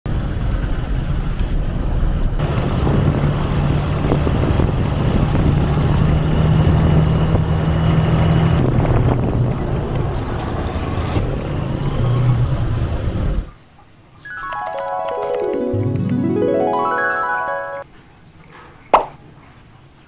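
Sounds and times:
road and wind noise: 0.1 - 13.6.

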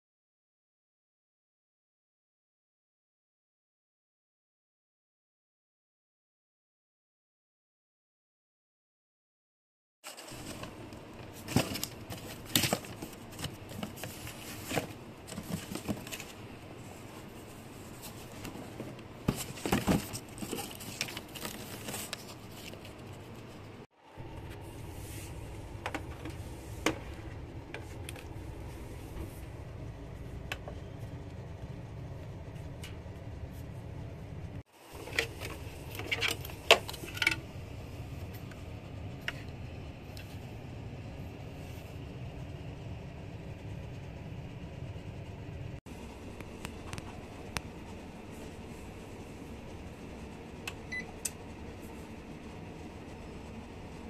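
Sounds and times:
steady low hum: 10.1 - 54.0.

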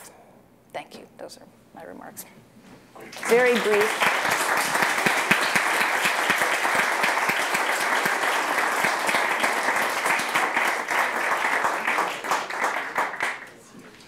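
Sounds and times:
audience clapping: 3.0 - 14.0.

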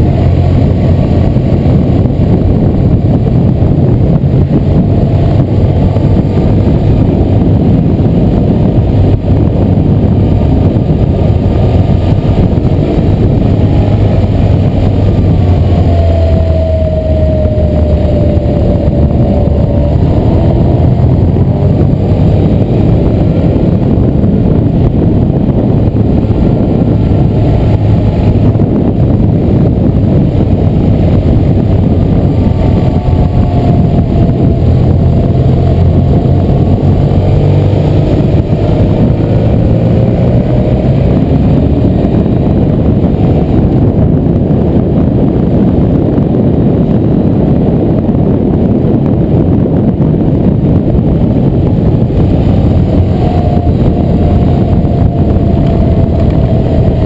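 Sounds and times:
motorcycle engine cruising: 0.0 - 57.0
wind rush on microphone: 0.0 - 57.0
faint tone sliding down: 10.7 - 44.0, 51.8 - 57.0.

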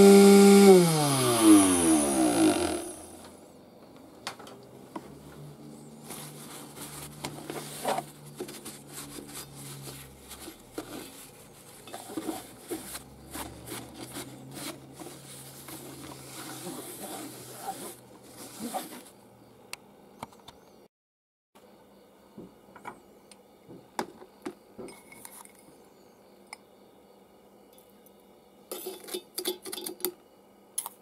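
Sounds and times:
hands rubbing and rustling: 5.4 - 19.2.

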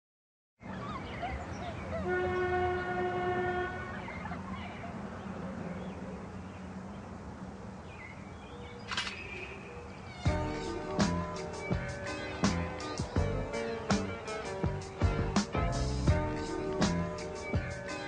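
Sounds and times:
horn sounding: 2.0 - 4.0
low outdoor rumble: 9.9 - 17.9.

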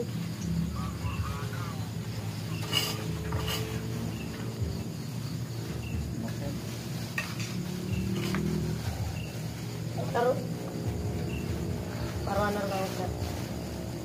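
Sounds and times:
insects chirping: 0.0 - 14.0
steady low hum: 0.0 - 14.0
plates and bowls clinking: 2.4 - 4.6, 7.0 - 8.8.

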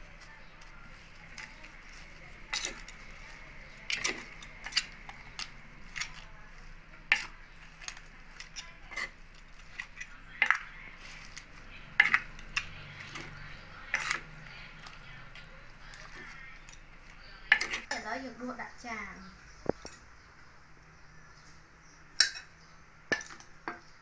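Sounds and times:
spoon scraping wooden mortar: 0.0 - 18.1.

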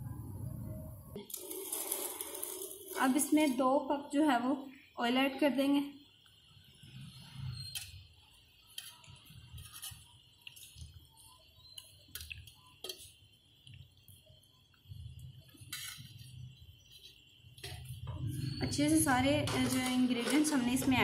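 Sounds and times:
metal kitchenware clinking: 17.0 - 21.0.

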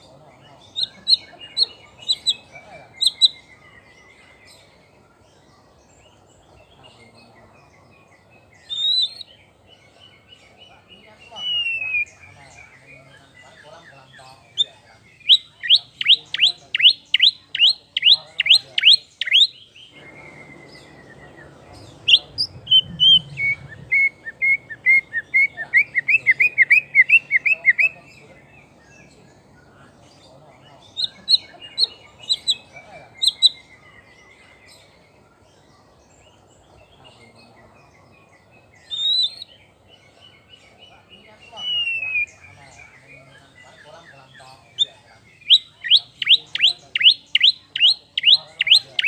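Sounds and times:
songbird singing whistles: 8.6 - 9.4, 11.4 - 12.2, 15.2 - 28.0, 33.2 - 33.8, 38.8 - 39.6, 41.5 - 42.4, 44.8 - 49.0.

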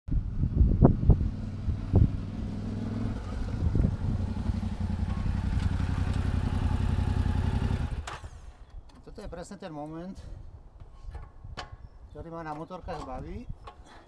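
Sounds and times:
motorcycle engine at low revs: 0.1 - 8.6.

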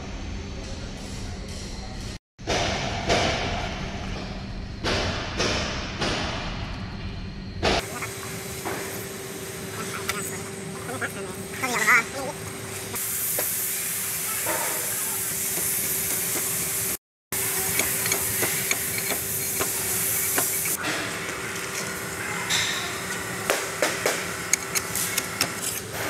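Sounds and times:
granules and tools clicking: 17.4 - 20.8, 23.1 - 26.0.

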